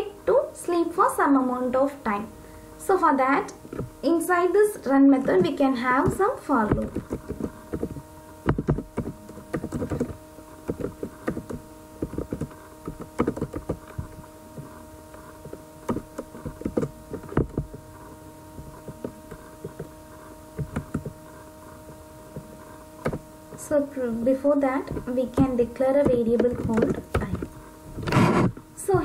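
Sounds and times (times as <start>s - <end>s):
steady hum: 0.0s - 29.0s
keyboard typing: 5.3s - 21.4s, 24.9s - 28.6s.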